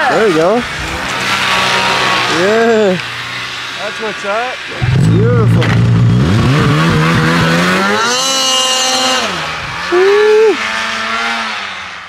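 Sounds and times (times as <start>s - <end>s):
snowmobile engine revving: 0.0s - 12.0s.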